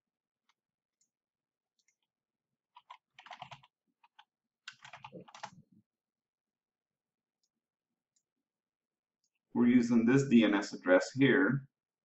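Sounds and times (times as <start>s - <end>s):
keyboard typing: 2.7s - 5.6s.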